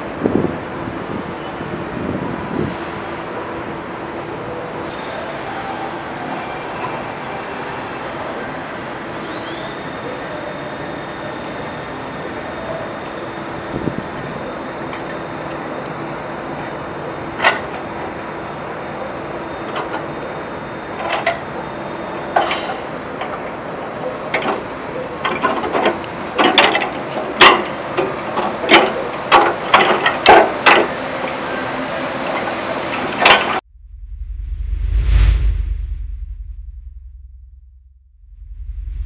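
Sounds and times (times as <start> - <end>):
cart rolling over pavement: 24.2 - 33.6
cart clanking and knocking: 24.3 - 31.0.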